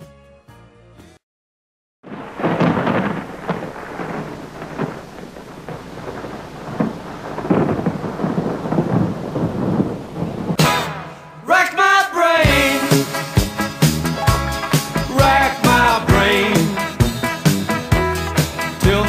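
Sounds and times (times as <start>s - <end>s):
steady rain: 2.1s - 10.6s
rolling thunder: 2.1s - 10.8s.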